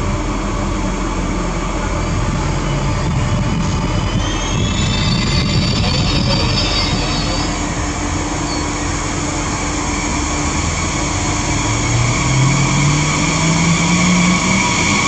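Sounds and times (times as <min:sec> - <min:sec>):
train mechanical hum: 0:00.0 - 0:15.0
train traction whine: 0:00.0 - 0:15.0.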